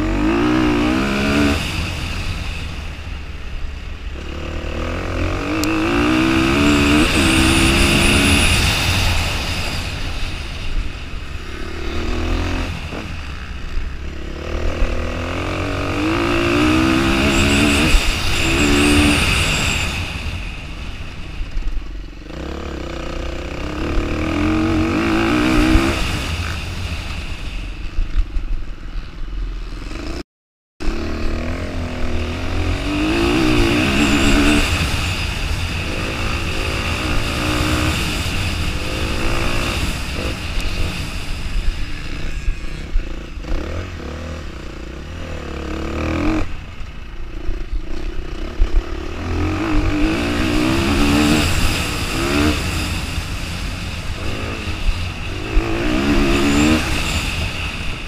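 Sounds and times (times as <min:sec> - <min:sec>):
motorcycle engine revving: 0:00.0 - 0:27.6, 0:30.8 - 0:58.0.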